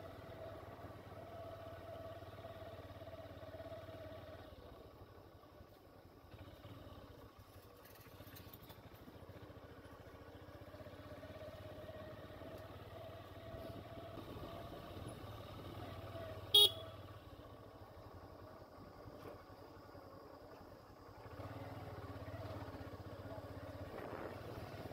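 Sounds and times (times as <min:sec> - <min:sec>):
small vehicle engine running: 0:00.0 - 0:24.9
short horn beep: 0:16.5 - 0:17.0.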